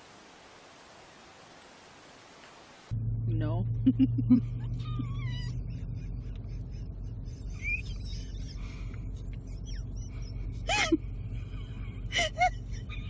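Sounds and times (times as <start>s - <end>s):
steady low hum: 2.9s - 13.0s.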